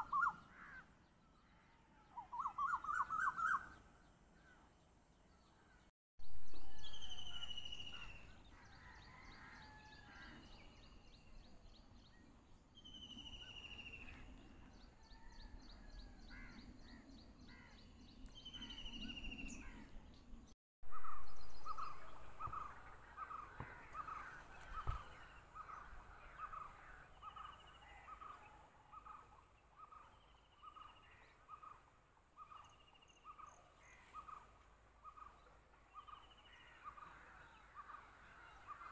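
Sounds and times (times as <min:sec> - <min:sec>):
descending whistled bird calls with trills: 0:00.0 - 0:00.4, 0:02.1 - 0:03.8.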